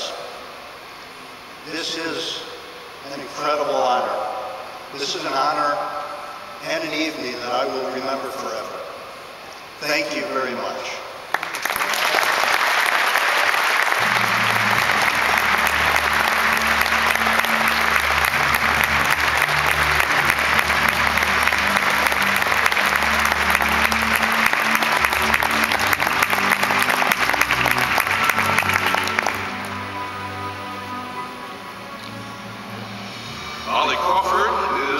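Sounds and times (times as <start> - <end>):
audience applauding: 11.3 - 30.4
music: 13.8 - 34.9.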